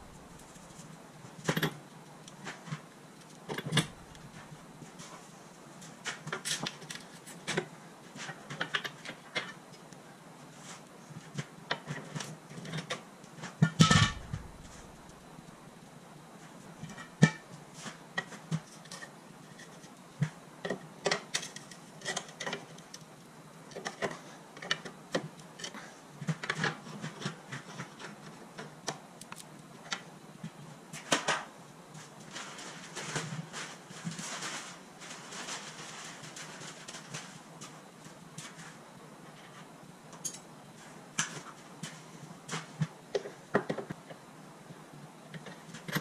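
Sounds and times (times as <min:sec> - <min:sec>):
metal scraping: 0:13.8 - 0:15.2.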